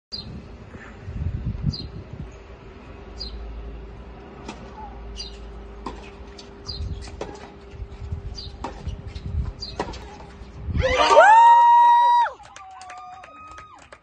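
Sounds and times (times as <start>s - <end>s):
small birds chirping: 1.6s - 2.5s, 3.1s - 3.5s, 4.7s - 10.7s
tennis balls struck by rackets: 5.3s - 7.6s, 8.6s - 10.4s.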